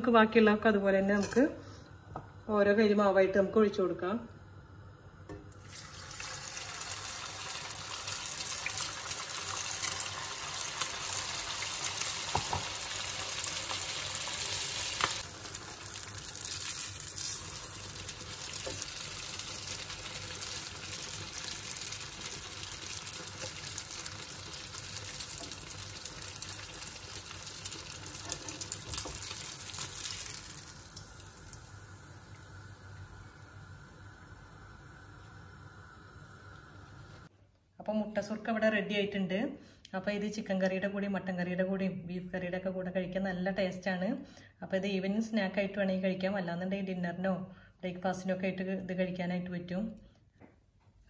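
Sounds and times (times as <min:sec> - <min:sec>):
batter sizzling in hot oil: 0:05.6 - 0:37.3
oil crackling: 0:06.3 - 0:31.8.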